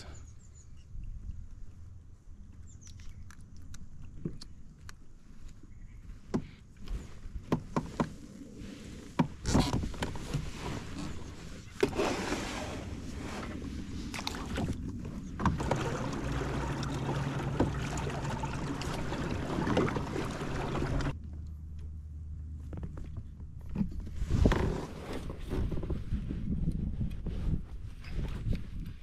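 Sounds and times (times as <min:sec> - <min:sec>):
water sloshing around kayak: 0:09.3 - 0:21.2.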